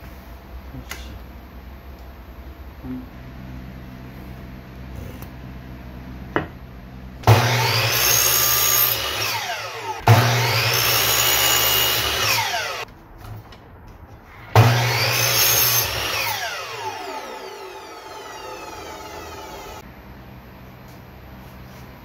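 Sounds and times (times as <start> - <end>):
miter saw cutting wood: 7.2 - 12.9, 14.4 - 19.8
saw blade winding down whine: 7.3 - 12.8, 14.4 - 19.8.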